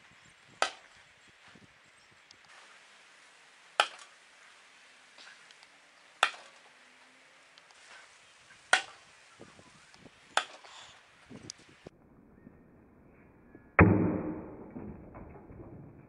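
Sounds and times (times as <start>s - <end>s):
throwing knives striking wood: 6.2s - 6.6s.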